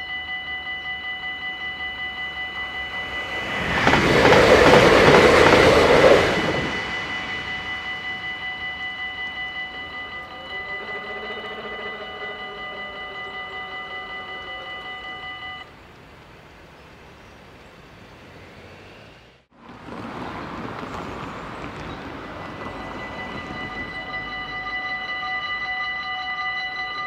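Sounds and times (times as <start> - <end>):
level crossing warning bell: 0.0 - 15.7, 21.6 - 27.0
rushing noise: 2.4 - 15.7.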